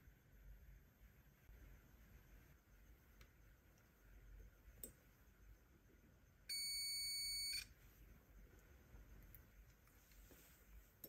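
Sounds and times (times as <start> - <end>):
multimeter high beep: 6.5 - 7.7.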